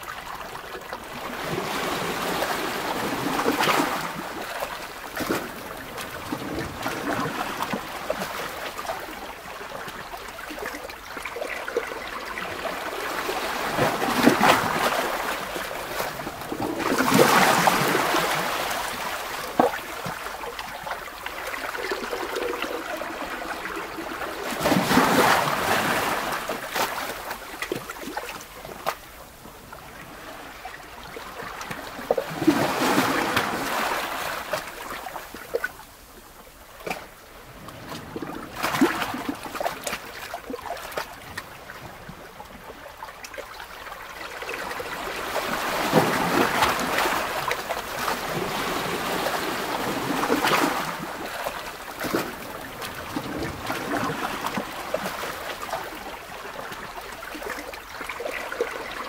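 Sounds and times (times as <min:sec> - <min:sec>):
rushing water: 0:00.0 - 0:59.0.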